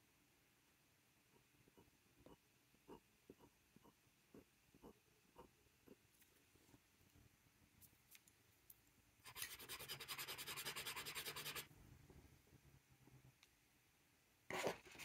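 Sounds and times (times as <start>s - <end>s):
pen scratching on paper: 9.3s - 11.7s.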